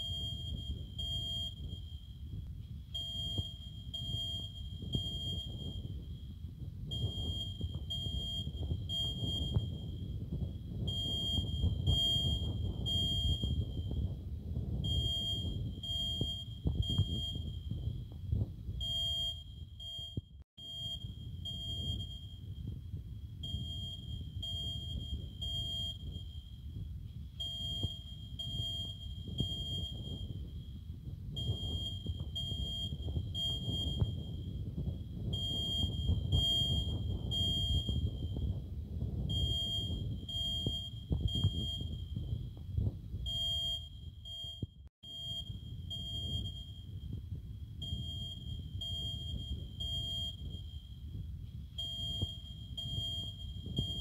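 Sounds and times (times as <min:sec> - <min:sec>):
smoke alarm beeping: 0:00.0 - 0:14.1, 0:14.8 - 0:18.0, 0:18.8 - 0:22.8, 0:23.4 - 0:26.7, 0:27.3 - 0:30.7, 0:31.4 - 0:34.6, 0:35.2 - 0:38.5, 0:39.3 - 0:42.5, 0:43.2 - 0:47.1, 0:47.8 - 0:51.0, 0:51.6 - 0:54.0.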